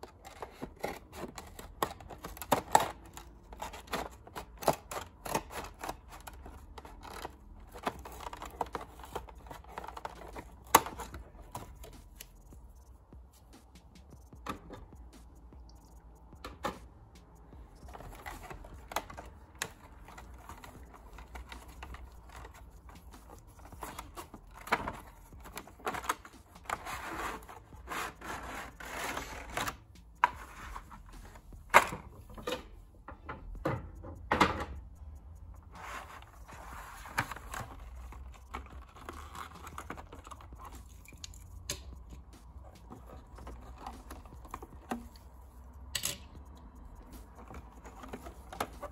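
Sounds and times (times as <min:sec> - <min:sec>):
plastic and cardboard crinkling: 0:00.0 - 0:12.4, 0:17.7 - 0:32.5, 0:35.6 - 0:45.5, 0:47.0 - 0:48.9.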